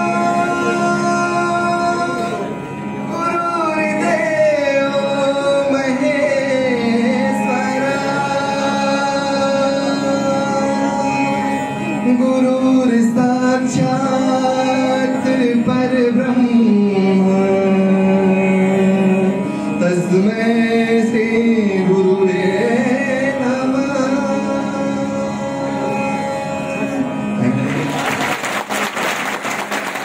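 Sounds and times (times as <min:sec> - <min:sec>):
man singing into microphone: 0:00.0 - 0:27.8
steady drone: 0:00.0 - 0:28.4
applause: 0:27.7 - 0:30.0.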